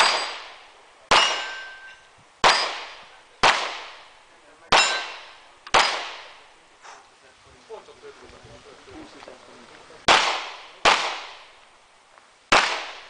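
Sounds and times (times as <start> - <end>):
handgun shots: 4.7 - 6.4, 10.1 - 11.5, 12.5 - 13.0.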